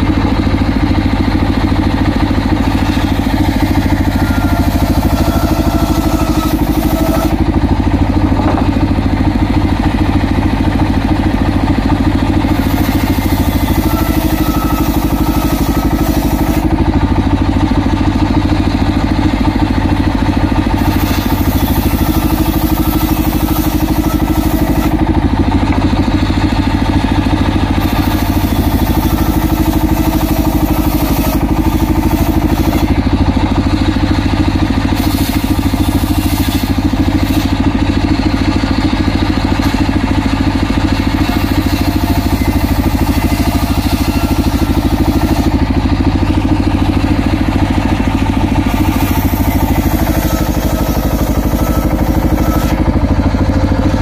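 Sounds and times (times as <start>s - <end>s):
table saw engine running: 0.0s - 54.0s
saw blade hissing through wood: 2.7s - 8.1s, 12.4s - 16.8s, 20.7s - 25.1s, 27.7s - 33.3s, 34.8s - 37.7s, 40.9s - 46.0s, 48.6s - 53.0s.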